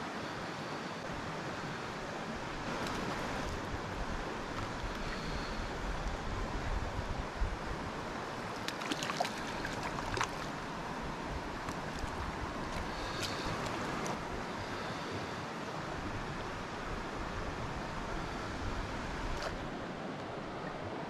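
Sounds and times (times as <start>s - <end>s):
creek rushing over rocks: 7.9s - 14.7s
fish splashing in shallow water: 8.2s - 15.0s.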